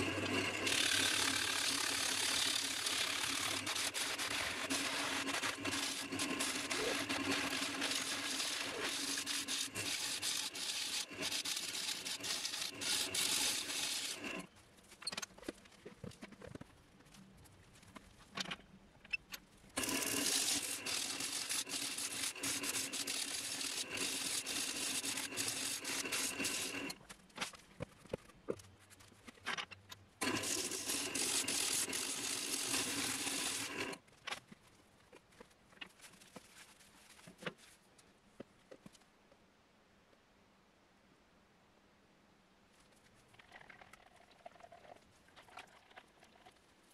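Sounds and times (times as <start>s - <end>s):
gouge cutting wood on lathe: 0.0s - 14.5s, 19.8s - 27.0s, 30.2s - 34.0s.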